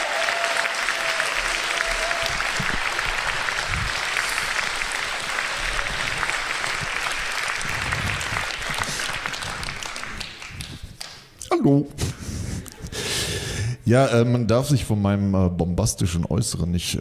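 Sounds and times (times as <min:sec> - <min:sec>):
audience applauding: 0:00.0 - 0:11.3.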